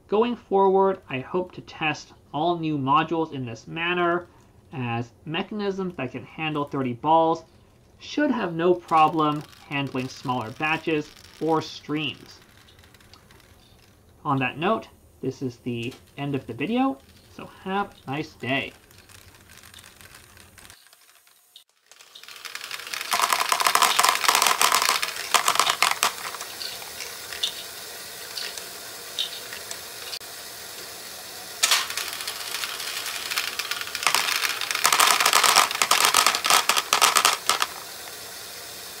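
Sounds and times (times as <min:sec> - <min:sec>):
plastic balls clattering into bin: 0:08.8 - 0:14.1, 0:15.9 - 0:27.7, 0:31.5 - 0:38.3.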